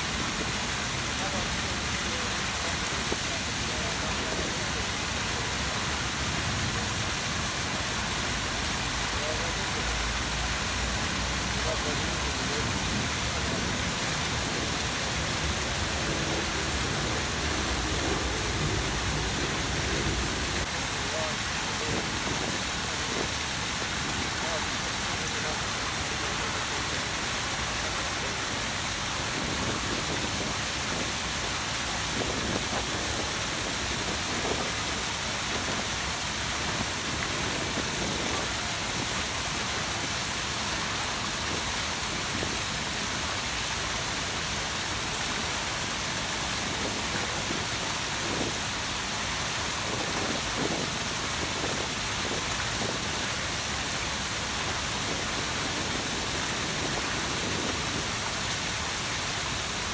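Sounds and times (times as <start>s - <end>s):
fountain water splashing: 0.0s - 59.9s.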